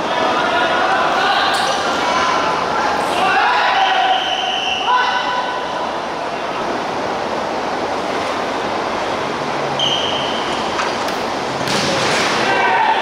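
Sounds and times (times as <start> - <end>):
referee's whistle blast: 3.8 - 5.0, 9.8 - 10.4.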